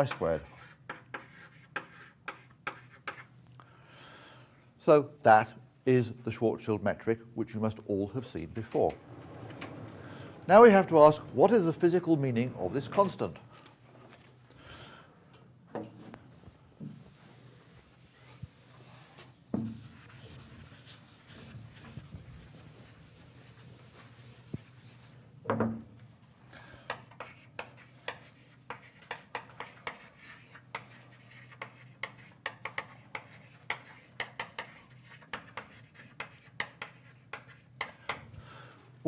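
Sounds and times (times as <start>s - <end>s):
chalk scratching on board: 0.0s - 3.3s, 18.0s - 25.2s, 26.9s - 38.1s.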